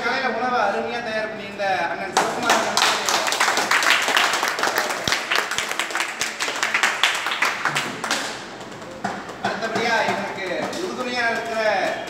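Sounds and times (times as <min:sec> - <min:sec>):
audience clapping: 0:02.4 - 0:09.5.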